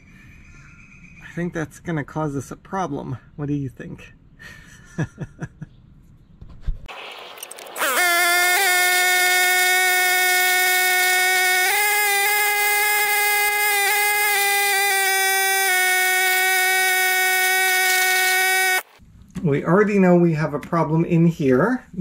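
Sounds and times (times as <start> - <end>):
small electric motor whining: 7.2 - 19.0.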